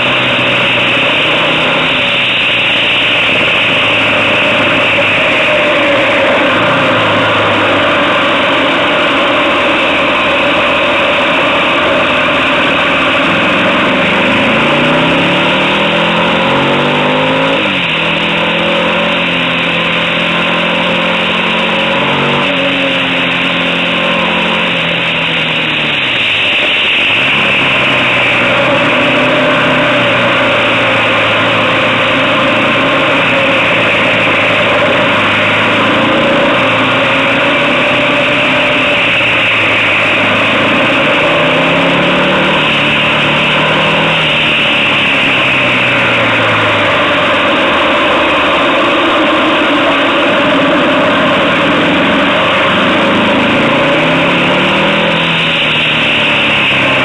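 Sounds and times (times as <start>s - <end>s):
motorcycle engine: 0.0s - 57.0s.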